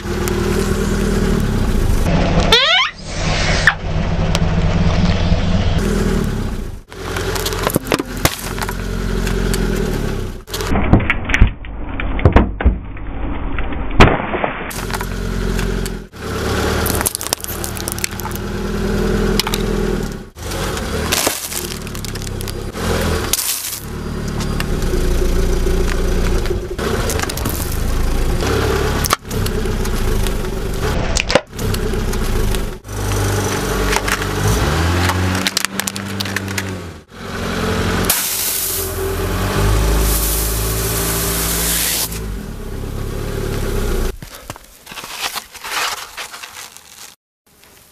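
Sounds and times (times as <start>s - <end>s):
car engine running: 0.0s - 10.8s, 14.7s - 44.2s
tyre crushing objects: 6.9s - 9.9s, 16.7s - 18.6s, 20.4s - 25.0s, 44.1s - 47.2s
sharp cracking and breaking: 16.8s - 18.5s, 20.6s - 23.9s, 44.1s - 47.2s.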